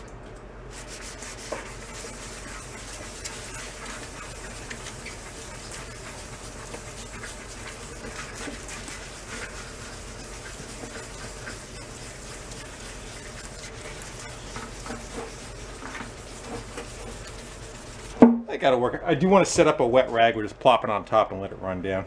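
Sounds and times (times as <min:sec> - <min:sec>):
sandpaper rubbing on wet metal: 0:00.7 - 0:18.2.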